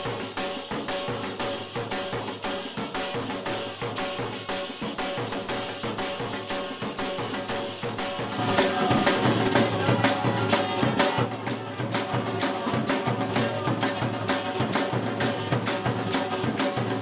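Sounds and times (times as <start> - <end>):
drum: 0.0 - 17.0
hand cymbals struck in a beat: 0.0 - 17.0
steady held tones: 8.1 - 16.9.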